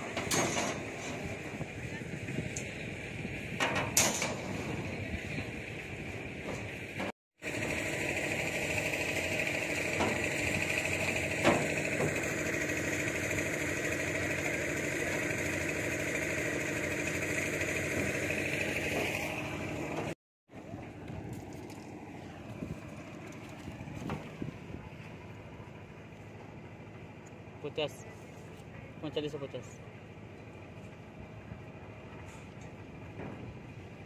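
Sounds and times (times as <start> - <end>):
motor running: 4.4 - 28.6.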